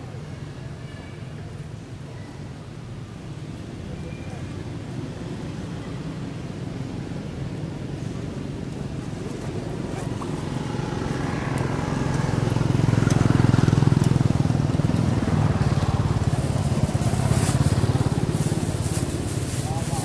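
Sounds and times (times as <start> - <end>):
vehicles passing by: 0.0 - 20.0
vehicle engine running: 9.8 - 20.0.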